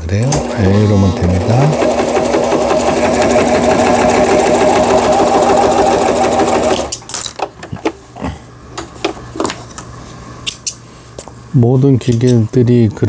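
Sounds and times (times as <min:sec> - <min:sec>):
sewing machine stitching: 0:00.3 - 0:07.0.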